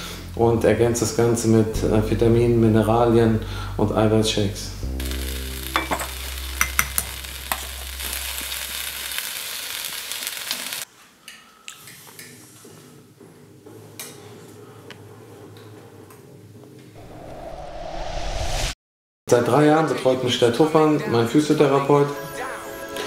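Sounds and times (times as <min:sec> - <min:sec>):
steady hiss: 0:04.8 - 0:10.9
spoon clinking in a glass: 0:05.8 - 0:07.0.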